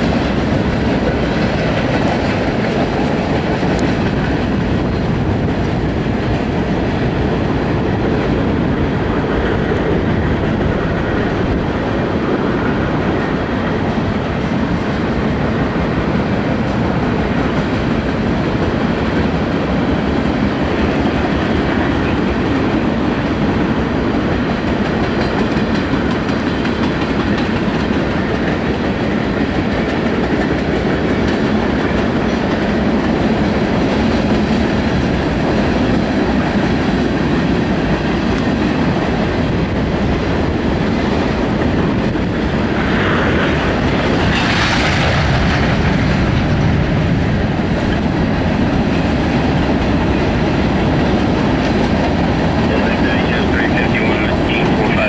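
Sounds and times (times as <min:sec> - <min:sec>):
freight train rumbling past: 0:00.0 - 0:55.0
wheels clacking over rail joints: 0:00.0 - 0:55.0.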